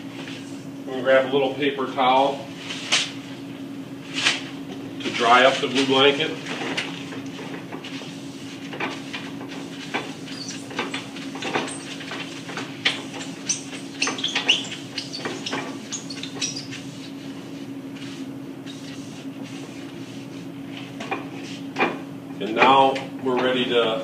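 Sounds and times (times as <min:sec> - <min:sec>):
machine hum: 0:00.0 - 0:24.0
paper towel wiping a cylinder: 0:07.9 - 0:21.7.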